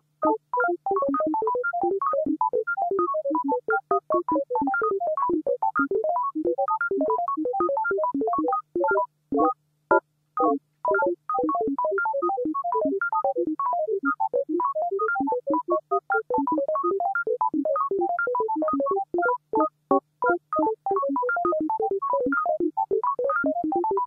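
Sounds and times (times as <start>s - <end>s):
synthesized notes: 10.4s - 22.6s.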